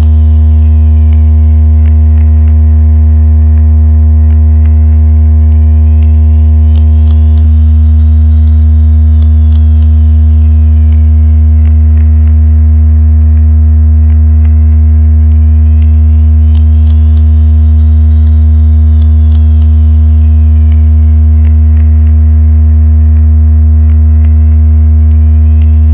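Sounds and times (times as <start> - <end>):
faint ticks: 0.0 - 2.8, 5.6 - 12.6, 15.5 - 22.2
low electronic hum: 0.0 - 25.9
steady high electronic tones: 0.0 - 25.9.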